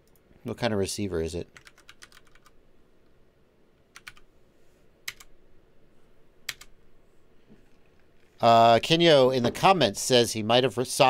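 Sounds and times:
computer keyboard keys clicking: 1.6 - 2.5, 3.9 - 4.2, 5.1 - 5.3, 6.5 - 6.7.

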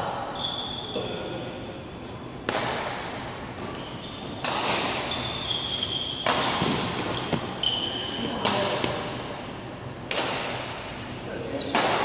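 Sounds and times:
shoes squeaking on court floor: 0.4 - 1.0, 3.5 - 9.0
badminton racket hitting shuttlecock: 2.0 - 7.6, 8.2 - 9.2, 10.0 - 11.0, 11.7 - 12.0.

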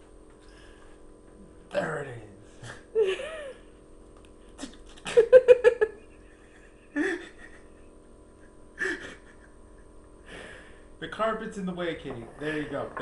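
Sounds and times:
person giggling: 2.9 - 3.7, 4.6 - 10.1.

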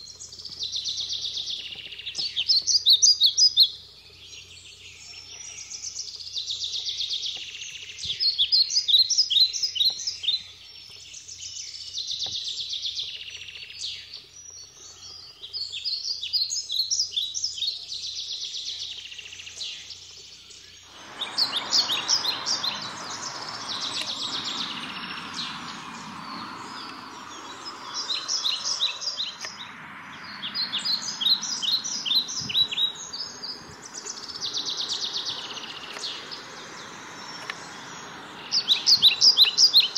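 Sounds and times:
songbirds singing: 0.0 - 39.9
steady rushing noise: 20.9 - 39.9.

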